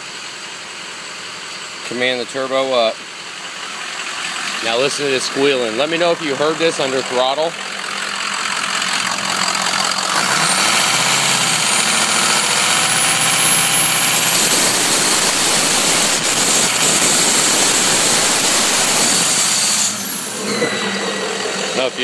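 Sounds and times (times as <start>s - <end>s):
diesel engine running: 0.0s - 22.0s
turbo squealing whistle: 9.5s - 22.0s.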